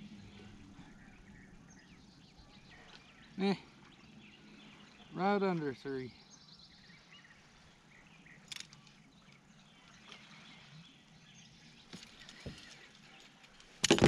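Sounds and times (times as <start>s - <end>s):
faint bird chirps: 0.0s - 5.2s.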